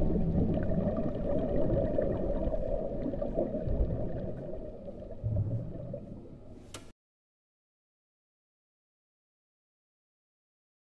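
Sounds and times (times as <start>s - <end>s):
muffled underwater rumble: 0.0s - 6.6s.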